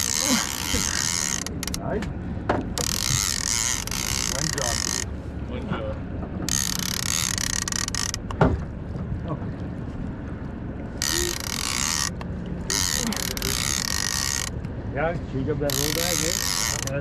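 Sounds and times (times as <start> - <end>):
fishing reel ratcheting: 0.0 - 1.9, 2.8 - 5.1, 6.5 - 8.4, 11.0 - 14.7, 15.7 - 17.0.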